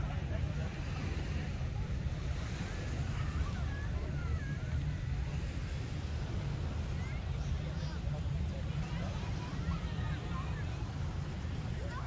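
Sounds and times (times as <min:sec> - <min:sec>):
surf washing: 0:00.0 - 0:12.0.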